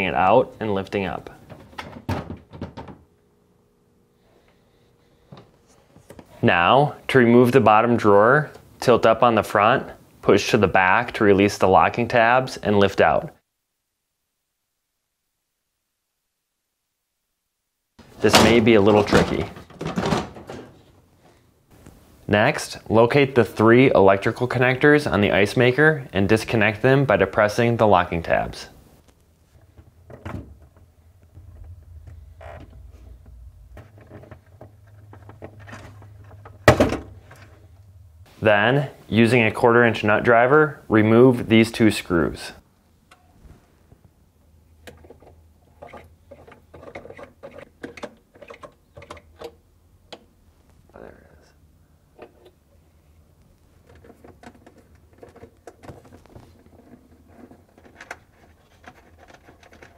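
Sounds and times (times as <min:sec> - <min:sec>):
low steady hum: 0:00.0 - 0:59.9
nut driver clicks and rattles: 0:44.8 - 0:50.2.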